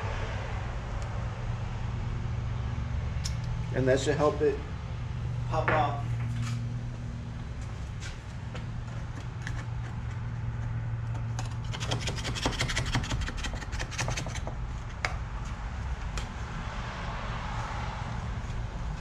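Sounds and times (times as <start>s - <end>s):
steady low hum: 0.0s - 12.2s
plastic scraper scraping car roof: 11.2s - 14.4s.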